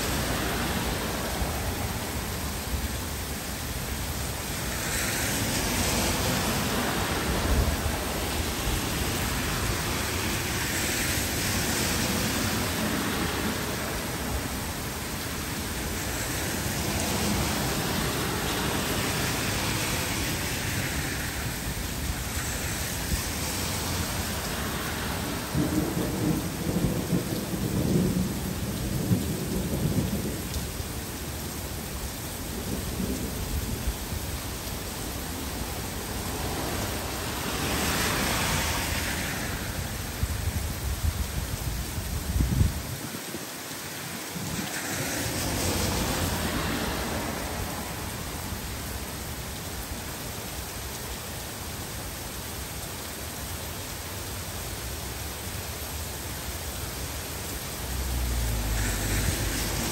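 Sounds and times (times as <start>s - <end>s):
heavy rain on trees and pavement: 0.0s - 59.9s
thunder rumbling: 24.8s - 30.5s.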